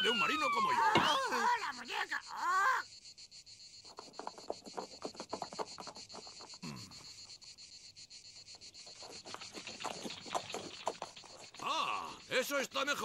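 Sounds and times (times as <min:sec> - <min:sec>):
high cricket-like chirring: 0:00.0 - 0:13.0
galloping horse hoofbeats: 0:03.9 - 0:06.6, 0:08.8 - 0:12.2.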